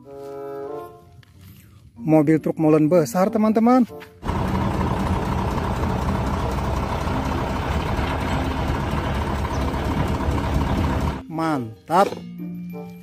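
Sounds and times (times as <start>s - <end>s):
truck engine idling: 4.2s - 11.2s.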